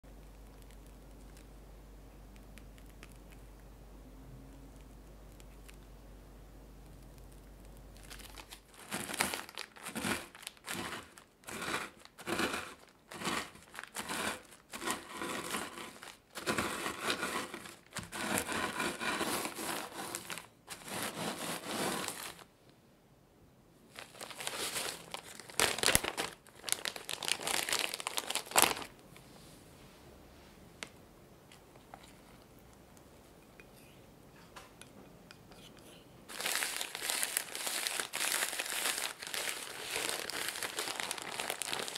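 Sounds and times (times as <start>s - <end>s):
cookie crumbs crunching: 0.0s - 1.5s, 2.4s - 3.6s, 6.8s - 22.4s, 36.3s - 41.9s
plastic bag crinkling: 7.9s - 22.5s, 23.9s - 29.0s, 36.3s - 41.9s.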